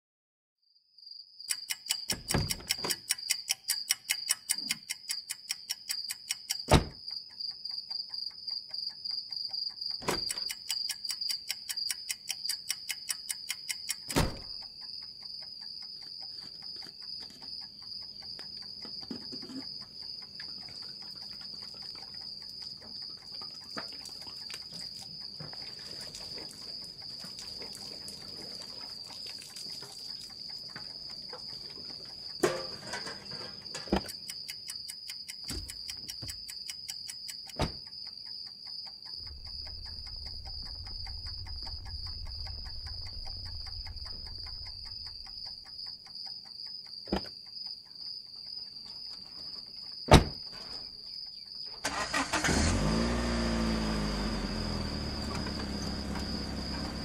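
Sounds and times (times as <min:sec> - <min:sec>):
crickets trilling: 0:01.0 - 0:57.0
fast even ticking: 0:01.5 - 0:25.4, 0:33.6 - 0:47.0
deep booms: 0:39.2 - 0:45.5.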